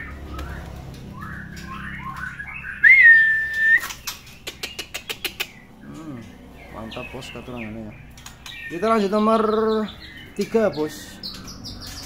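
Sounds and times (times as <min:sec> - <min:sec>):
bird chirping: 0:00.0 - 0:12.0
bird whistled note: 0:02.7 - 0:03.9.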